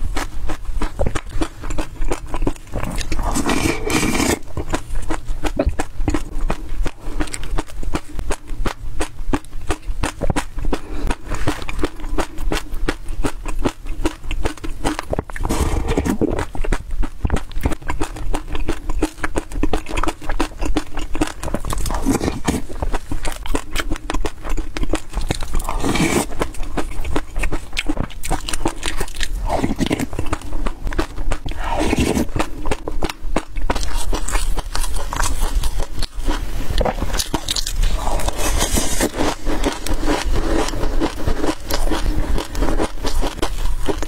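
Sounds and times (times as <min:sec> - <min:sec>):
chewing seeds crackling: 0:00.0 - 0:44.0.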